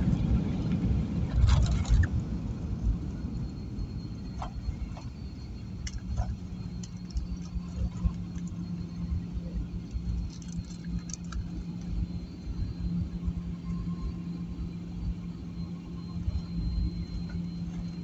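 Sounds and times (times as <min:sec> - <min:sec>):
engine and airflow rumble: 0:00.0 - 0:18.0
steady hum: 0:00.0 - 0:18.0.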